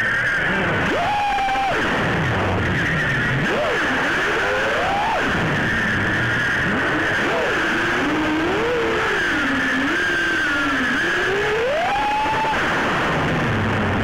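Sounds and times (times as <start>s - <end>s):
quadcopter motors whining: 0.0s - 12.9s.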